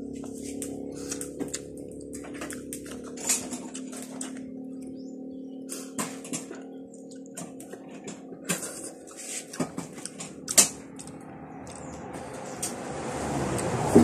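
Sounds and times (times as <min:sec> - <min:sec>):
fingers picking apart food: 0:00.2 - 0:03.1.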